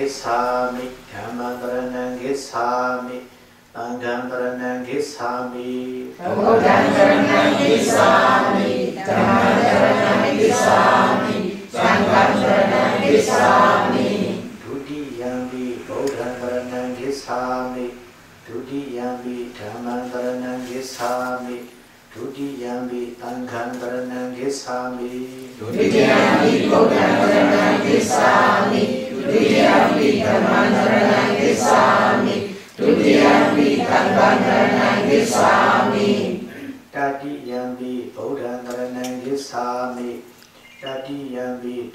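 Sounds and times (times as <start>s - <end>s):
group chanting in unison: 6.2s - 17.0s, 25.6s - 36.8s.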